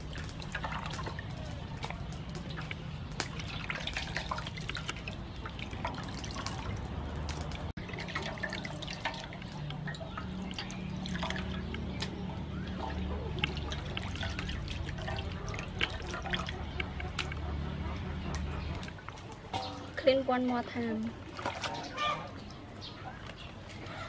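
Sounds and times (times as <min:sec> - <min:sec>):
water splashes and drips: 0:00.0 - 0:24.0.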